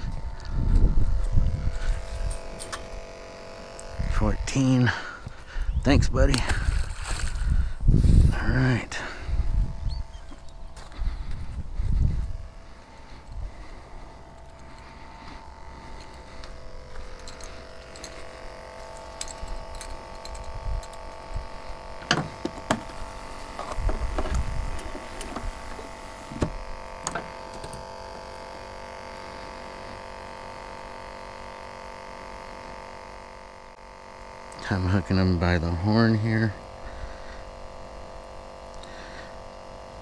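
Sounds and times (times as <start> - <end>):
aerator buzzing hum: 0.0 - 40.0.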